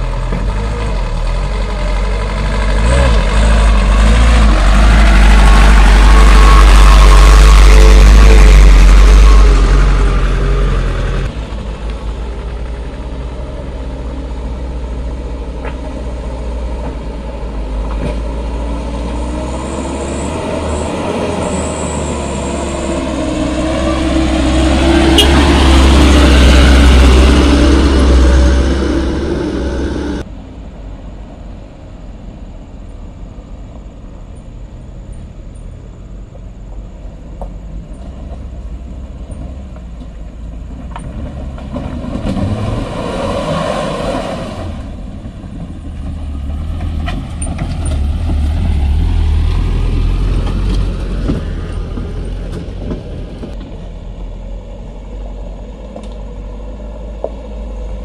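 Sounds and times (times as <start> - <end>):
distant van engine: 0.0 - 58.0
truck engine climbing hill: 0.0 - 58.0.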